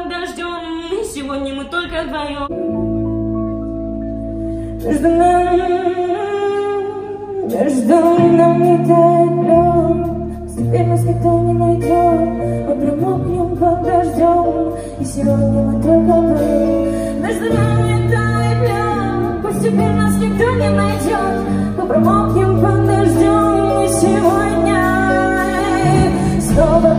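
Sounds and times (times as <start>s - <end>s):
live band playing: 0.0s - 26.9s
woman singing: 4.8s - 26.9s
bass line: 7.4s - 26.9s.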